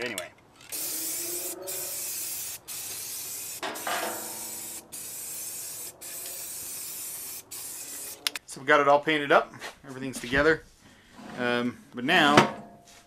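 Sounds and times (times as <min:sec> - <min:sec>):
spray paint can hissing: 0:00.7 - 0:08.4.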